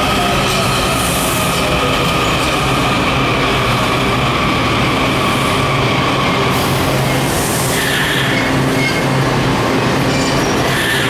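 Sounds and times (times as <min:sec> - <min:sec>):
subway train electric whine: 0:00.0 - 0:11.0
wheels rumbling on rails: 0:00.0 - 0:11.0.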